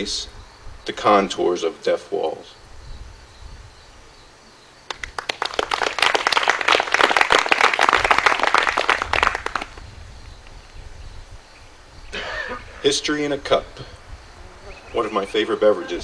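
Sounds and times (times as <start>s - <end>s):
audience applauding: 4.9s - 9.9s.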